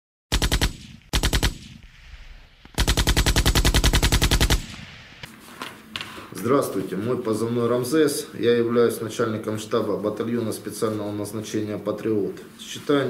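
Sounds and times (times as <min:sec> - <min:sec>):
machine-gun fire bursts: 0:00.3 - 0:01.9, 0:02.8 - 0:04.9.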